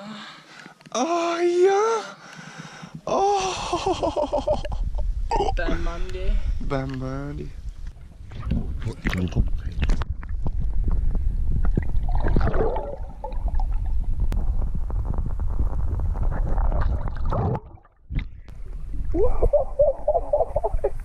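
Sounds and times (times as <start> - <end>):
muffled underwater sloshing: 7.5 - 21.0.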